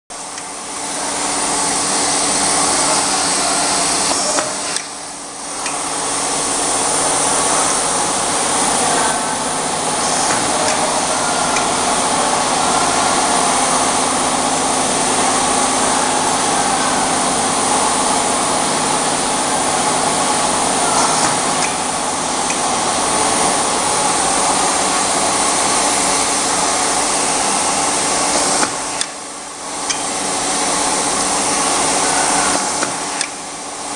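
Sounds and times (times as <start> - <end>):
machinery hiss and hum: 0.1 - 33.9.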